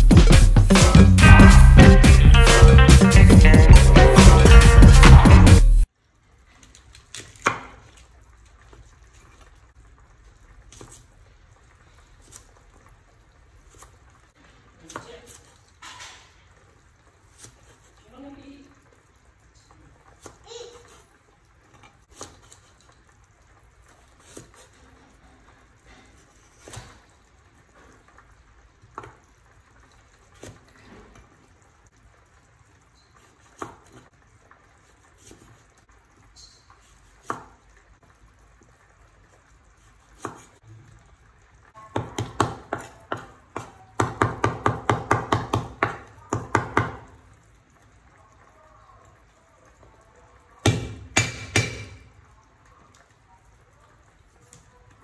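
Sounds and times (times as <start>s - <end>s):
cleaver chopping on wooden board: 42.0s - 47.0s, 50.7s - 52.0s.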